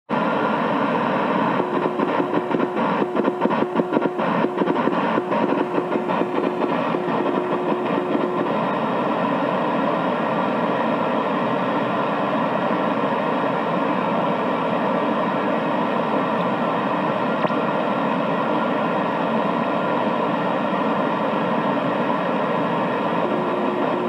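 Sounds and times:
radio band hiss: 0.1s - 24.0s
radio crackle: 0.4s - 9.9s.

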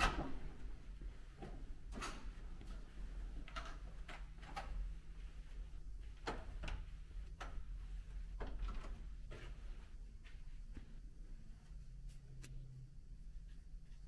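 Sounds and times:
steady low rumble: 4.8s - 14.0s.

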